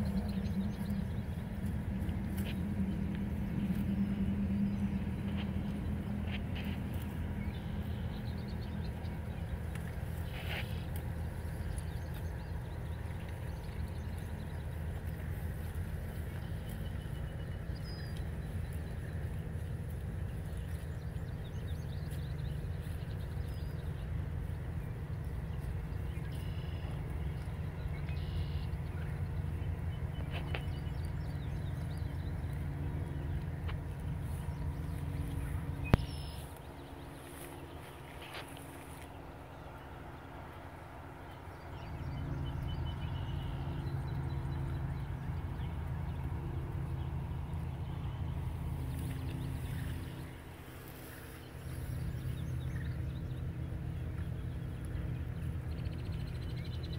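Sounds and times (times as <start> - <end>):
cows tearing and chewing grass: 0.0 - 56.9
low engine-like hum: 0.0 - 56.9
steady low rumble: 0.0 - 56.9
faint high chirp: 28.0 - 28.8, 35.9 - 36.6.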